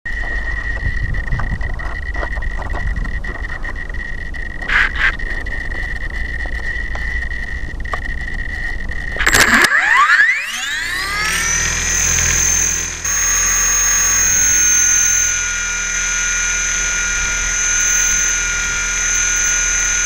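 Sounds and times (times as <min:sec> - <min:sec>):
clicks: 0:07.9 - 0:10.7, 0:11.3 - 0:15.6
high-pitched electronic tone: 0:09.0 - 0:20.0
electric motor whine rising: 0:09.1 - 0:20.0.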